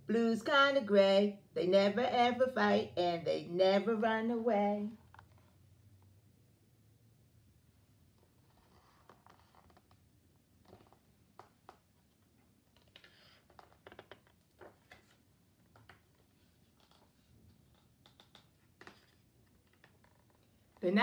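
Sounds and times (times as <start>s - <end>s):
book pages rustling: 8.2s - 20.8s.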